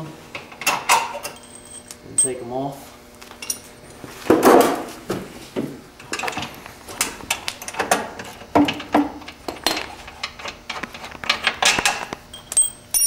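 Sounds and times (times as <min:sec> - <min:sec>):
metal tools clanking on concrete: 0:03.4 - 0:03.7, 0:07.3 - 0:13.0.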